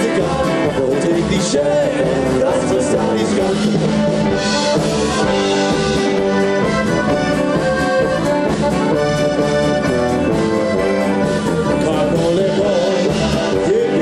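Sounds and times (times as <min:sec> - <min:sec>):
accordions playing polka: 0:00.0 - 0:14.0
brass horn: 0:03.1 - 0:11.4.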